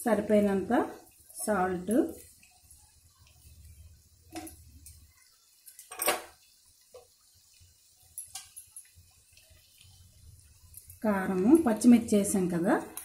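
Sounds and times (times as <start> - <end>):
spoons clinking on frying pan: 5.6 - 6.4, 8.1 - 9.0.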